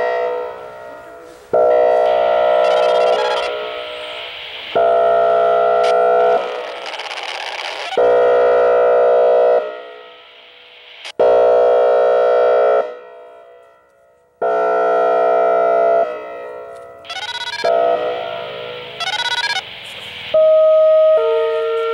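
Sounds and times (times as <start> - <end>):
warning siren horn blasts: 0.0 - 6.8, 7.8 - 10.1, 11.1 - 19.7, 20.3 - 21.9
siren stepping tone: 1.7 - 10.8, 17.0 - 19.7.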